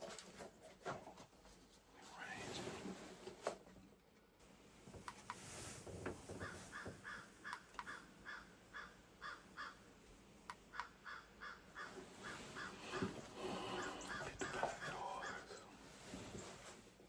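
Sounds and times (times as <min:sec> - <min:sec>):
crows cawing: 0:06.4 - 0:09.9, 0:10.7 - 0:15.5.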